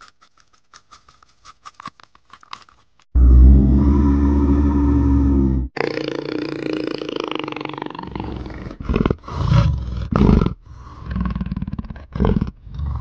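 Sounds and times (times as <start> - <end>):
big cat roaring grunts: 3.2 - 5.9
big cat rasping growl: 3.2 - 13.0.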